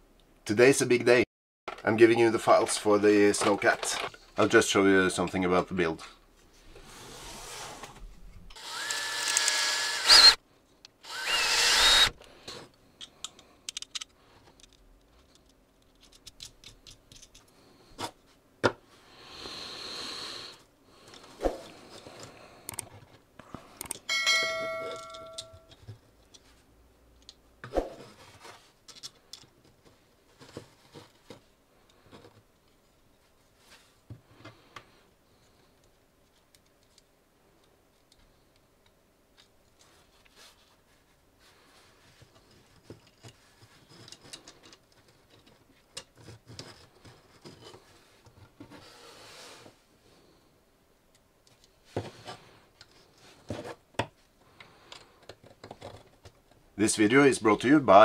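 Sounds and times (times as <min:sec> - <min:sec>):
plastic parts and screws clicking: 0:08.5 - 0:17.5, 0:22.0 - 0:23.2, 0:23.8 - 0:24.1, 0:28.8 - 0:32.8, 0:35.8 - 0:39.9, 0:42.3 - 0:48.6, 0:54.0 - 0:56.6.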